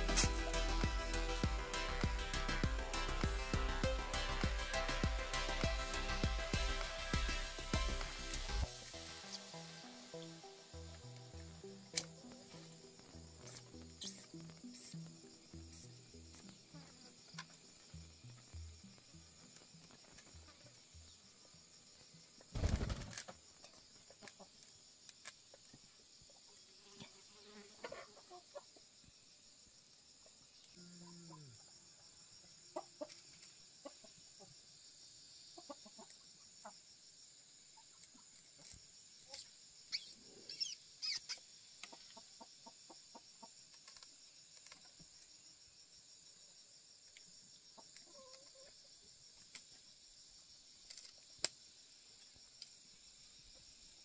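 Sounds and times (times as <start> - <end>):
high insect drone: 0.0 - 54.0
chickens clucking: 27.8 - 28.8.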